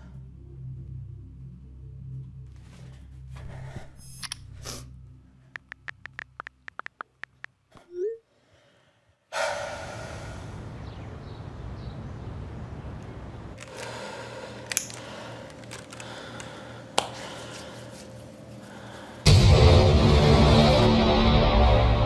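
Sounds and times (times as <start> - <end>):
sharp clicks: 5.6 - 7.6
low traffic rumble: 9.4 - 16.0
steady low hum: 9.4 - 22.0.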